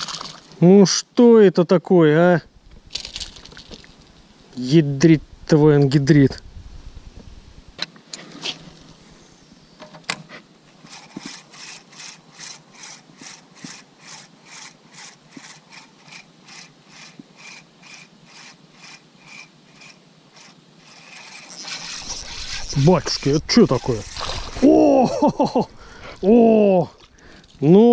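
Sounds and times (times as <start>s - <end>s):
spinning reel gears whirring: 10.9s - 26.4s.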